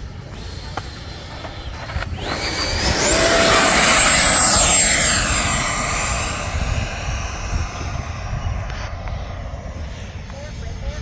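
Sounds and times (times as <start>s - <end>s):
model jet fan whine: 0.0s - 11.0s.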